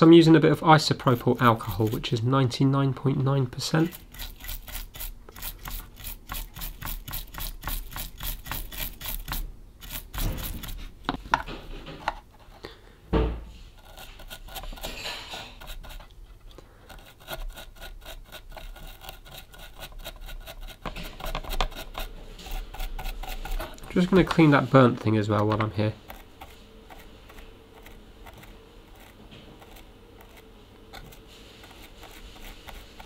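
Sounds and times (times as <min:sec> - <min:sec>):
brush scrubbing a circuit board: 0:00.8 - 0:02.2, 0:03.6 - 0:11.0, 0:13.7 - 0:16.1, 0:16.8 - 0:33.0
dull knock: 0:13.1 - 0:13.5.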